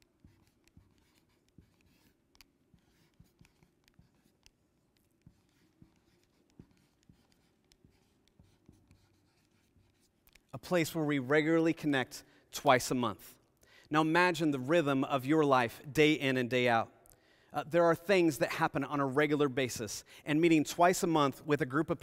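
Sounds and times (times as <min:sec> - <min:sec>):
marker writing on a board: 0:00.0 - 0:11.0.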